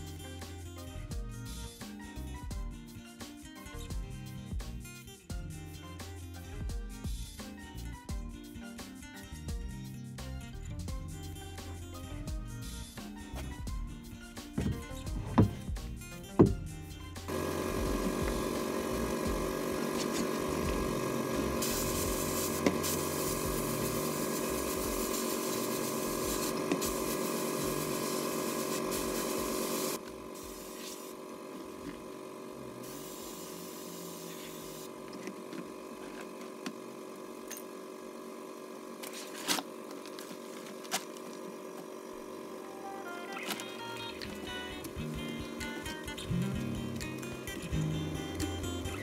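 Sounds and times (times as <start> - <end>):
steady hum: 14.5 - 49.0
sandblast gun hissing: 17.3 - 35.1.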